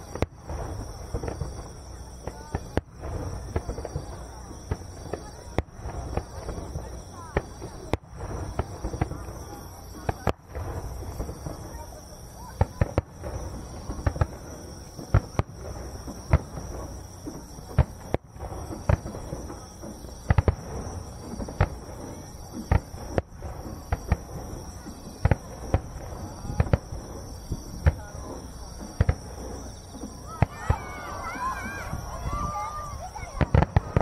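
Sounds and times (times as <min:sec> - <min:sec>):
firework shells bursting: 0:00.0 - 0:34.0.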